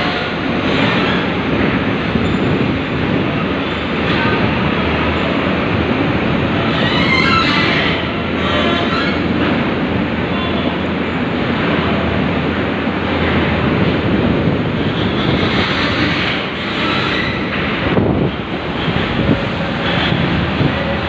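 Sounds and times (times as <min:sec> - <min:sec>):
bus engine rumble: 0:00.0 - 0:21.0.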